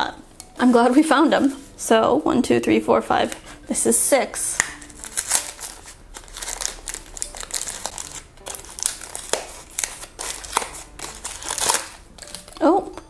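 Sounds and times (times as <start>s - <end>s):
paperboard box tearing and crinkling: 4.8s - 12.6s.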